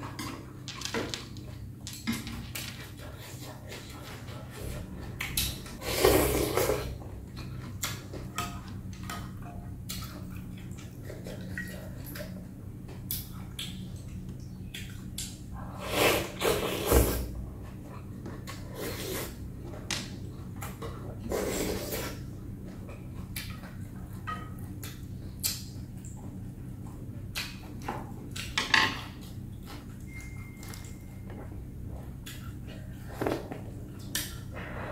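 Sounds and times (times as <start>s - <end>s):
slurping noodles: 5.8s - 7.0s, 15.7s - 17.2s, 21.3s - 22.2s.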